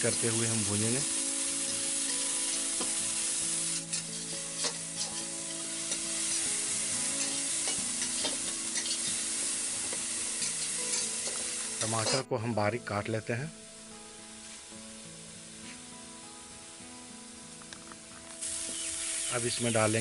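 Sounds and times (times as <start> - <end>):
onion sizzling in hot oil: 0.0 - 12.3, 18.4 - 20.0
metal spatula scraping a pan: 3.6 - 9.3, 9.9 - 12.2.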